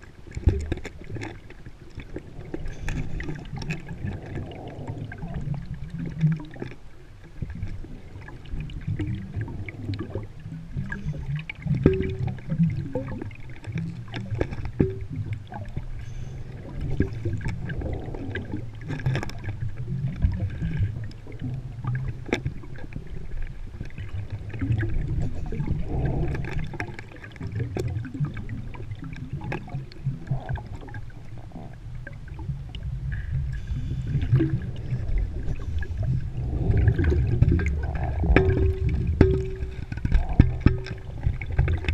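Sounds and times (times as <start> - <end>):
low underwater rumble: 0.0 - 41.9
underwater bubbles gurgling: 0.0 - 41.9
gear clicks and knocks: 38.3 - 41.9.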